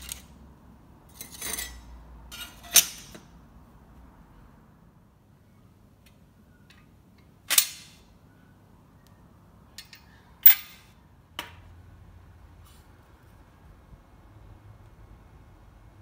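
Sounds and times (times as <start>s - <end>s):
sheet metal pieces clanking: 9.8s - 10.9s.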